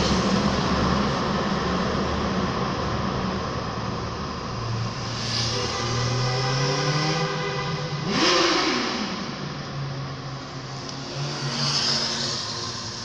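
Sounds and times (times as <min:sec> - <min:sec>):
steady engine hum: 0:00.0 - 0:13.0
motorcycle engine revving: 0:04.9 - 0:09.6, 0:10.4 - 0:13.0
motorcycles riding past: 0:11.0 - 0:13.0.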